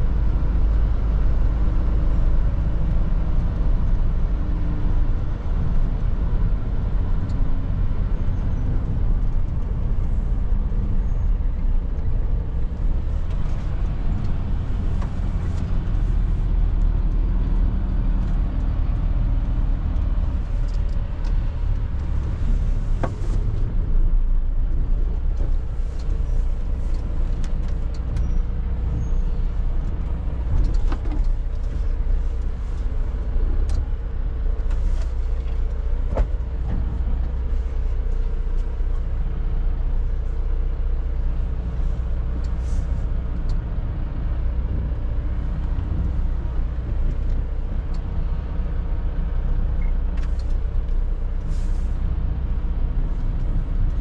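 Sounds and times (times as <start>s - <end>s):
truck diesel engine droning: 0.0s - 34.6s.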